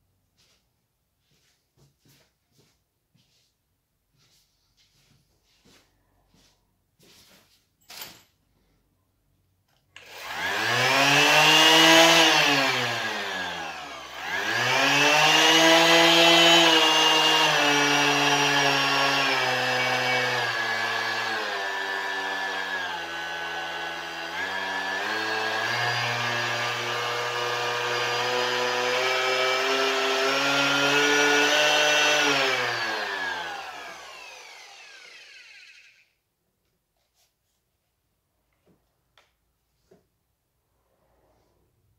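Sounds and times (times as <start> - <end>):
orbital sander whining: 10.0 - 36.2.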